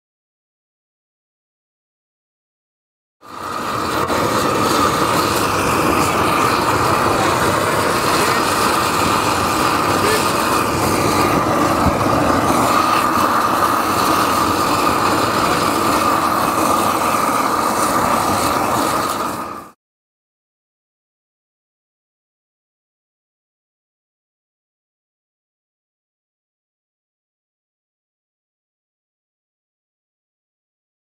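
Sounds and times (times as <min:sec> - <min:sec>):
constant mid-pitched hum: 0:03.3 - 0:19.7
indistinct voices: 0:06.0 - 0:12.6.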